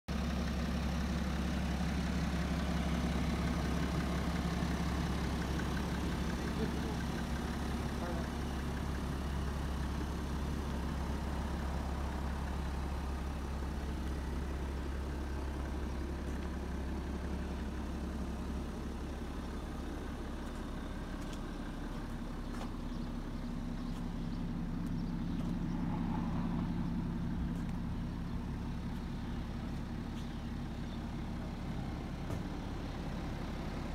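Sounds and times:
diesel car engine idling: 0.1s - 33.9s.

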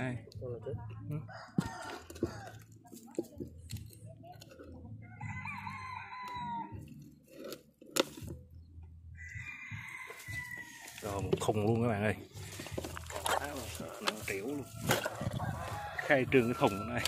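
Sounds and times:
rooster crowing: 5.2s - 6.8s, 9.2s - 11.0s, 14.4s - 17.0s.

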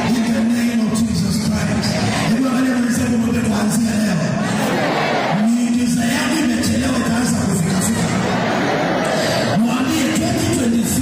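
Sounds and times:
crowd voices: 0.0s - 11.0s.

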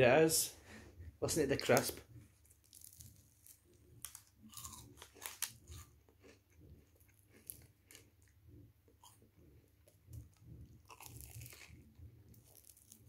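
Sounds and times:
fried batter crackling: 10.8s - 13.0s.

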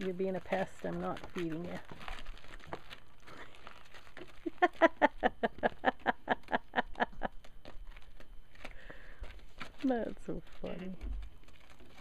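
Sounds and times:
woman laughing: 4.2s - 7.5s.

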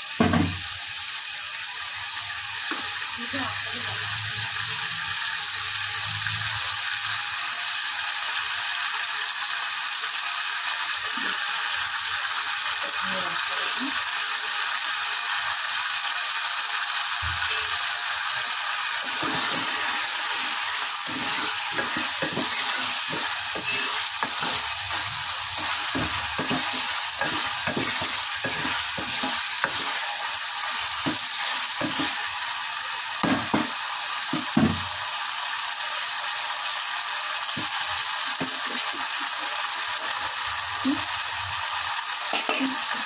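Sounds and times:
curry sizzling in a pan: 0.0s - 43.0s
spoon scraping and knocking pot: 19.0s - 30.2s, 31.0s - 32.2s.

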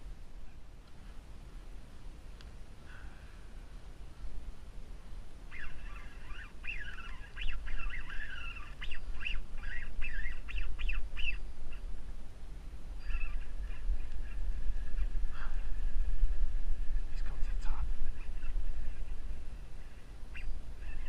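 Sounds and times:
birds calling: 5.4s - 12.1s, 12.9s - 16.2s, 16.9s - 21.0s.

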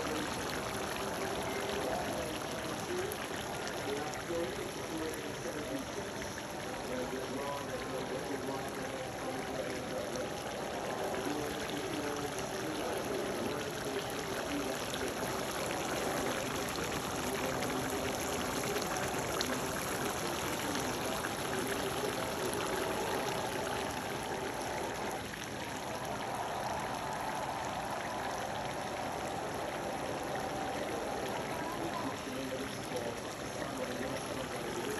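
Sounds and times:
curry boiling in pot: 0.0s - 34.9s.

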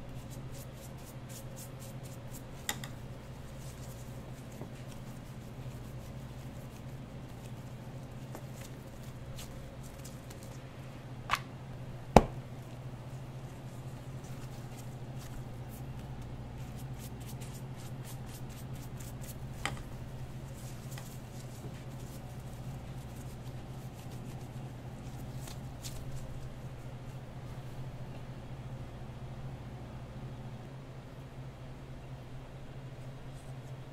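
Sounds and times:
tortilla handled on a cutting board: 0.5s - 10.6s, 13.4s - 27.1s.

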